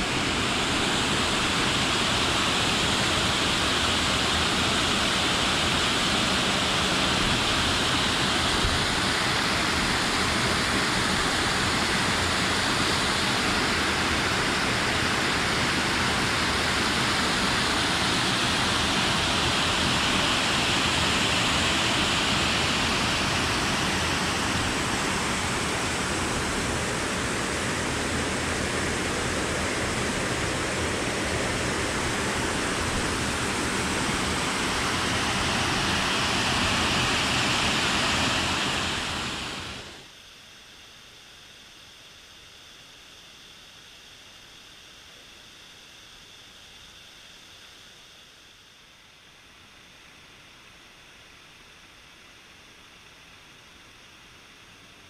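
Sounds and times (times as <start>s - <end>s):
waterfall rushing: 17.0s - 40.0s.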